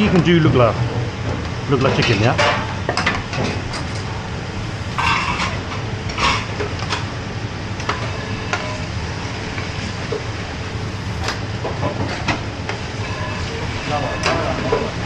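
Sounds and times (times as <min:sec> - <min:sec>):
gas range rumble: 0:00.0 - 0:15.0.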